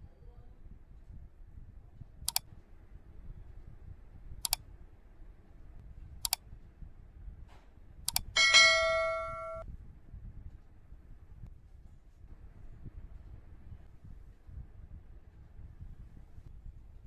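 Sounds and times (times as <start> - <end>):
double mouse clicks: 2.2 - 2.5, 4.4 - 4.6, 6.2 - 6.4, 8.1 - 8.3.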